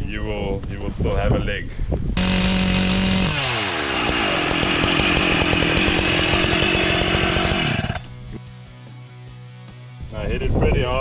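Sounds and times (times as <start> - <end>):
chainsaw bogging down: 2.2 - 8.2.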